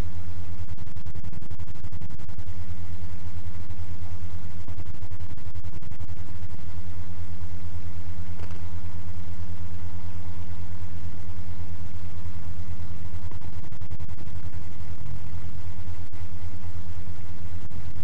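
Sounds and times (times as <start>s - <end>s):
low hum with buzzing flutter: 0.0s - 18.0s.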